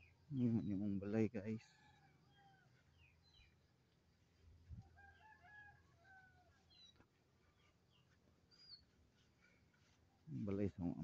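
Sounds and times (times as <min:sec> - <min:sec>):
small birds chirping: 0:00.0 - 0:11.0
distant rooster crowing: 0:01.6 - 0:03.1, 0:04.8 - 0:06.9.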